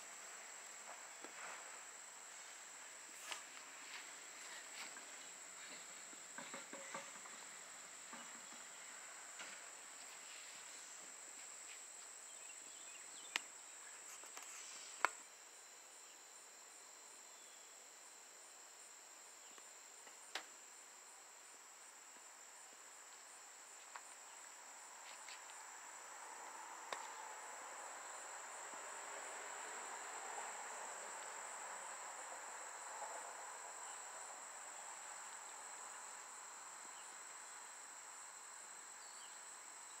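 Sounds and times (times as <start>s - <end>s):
high-pitched insect trill: 3.2s - 40.0s.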